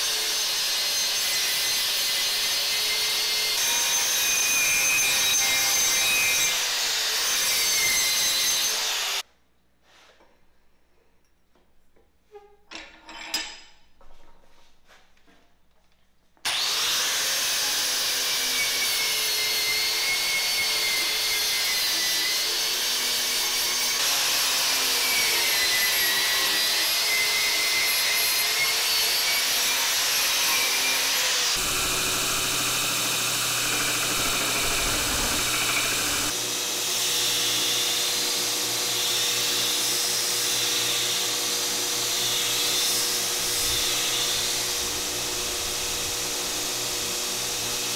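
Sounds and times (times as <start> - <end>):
angle grinder grinding steel: 0.0 - 9.3, 16.5 - 47.9
belt grinder running: 16.5 - 26.8, 28.3 - 47.9.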